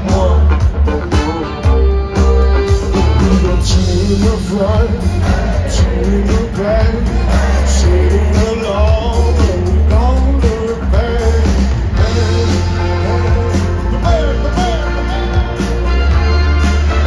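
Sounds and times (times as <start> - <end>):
electric guitar: 0.0 - 17.0
live pop-rock band: 0.0 - 17.0
person singing: 0.0 - 17.0.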